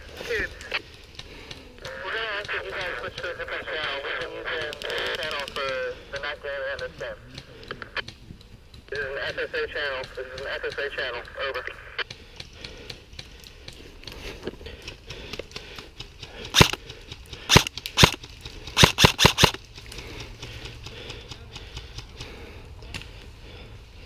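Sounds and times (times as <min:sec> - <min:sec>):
airsoft rifle shots: 0:16.5 - 0:16.8, 0:17.5 - 0:19.6.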